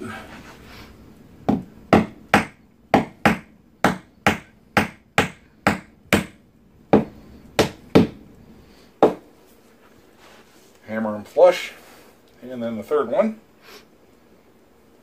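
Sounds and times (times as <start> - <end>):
hammer tapping wooden pegs: 1.5 - 8.2, 9.0 - 9.2.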